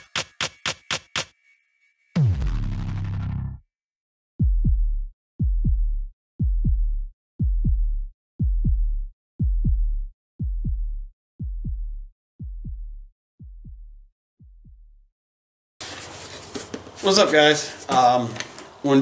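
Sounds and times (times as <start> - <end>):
heartbeat double thump: 4.4 - 14.9.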